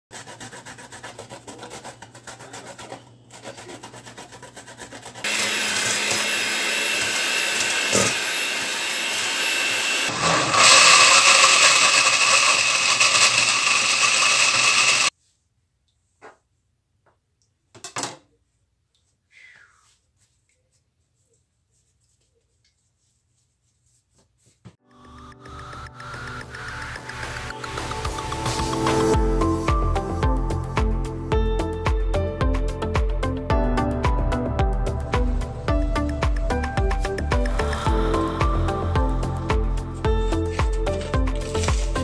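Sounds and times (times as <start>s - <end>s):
coconut rasping on grater: 0.1s - 15.1s, 40.3s - 42.0s
blender running: 5.2s - 15.1s, 40.4s - 42.0s.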